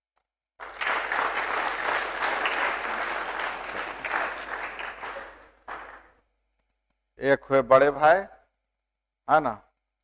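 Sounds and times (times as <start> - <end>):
crowd applauding: 0.6 - 6.2.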